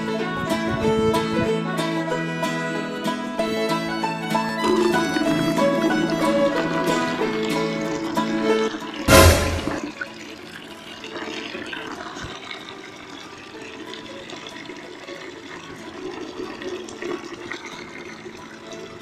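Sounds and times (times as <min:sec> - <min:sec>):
brief loud burst: 0:09.1 - 0:10.0
water running from a tap: 0:09.9 - 0:19.0.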